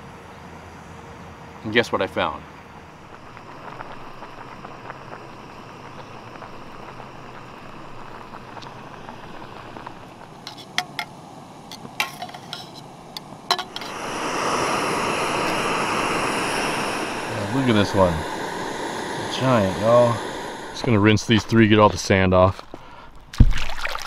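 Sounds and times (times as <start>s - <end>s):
camp stove hiss: 1.7s - 23.1s
water boiling in saucepan: 2.8s - 22.5s
utensil clinking on metal pot: 13.5s - 13.9s
loud rushing noise: 13.6s - 21.8s.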